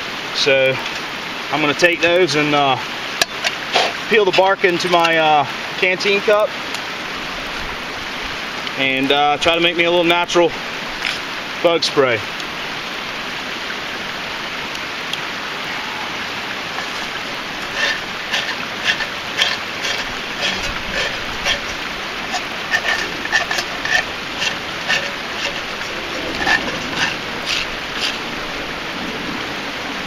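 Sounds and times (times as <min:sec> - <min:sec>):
creek rushing: 0:00.0 - 0:30.0
knife scraping bark off twigs: 0:03.2 - 0:04.5, 0:16.7 - 0:28.4.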